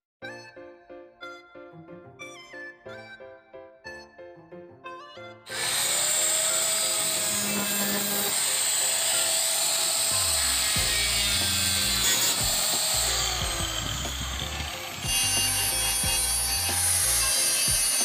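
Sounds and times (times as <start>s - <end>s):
angle grinder grinding metal: 5.5s - 18.0s.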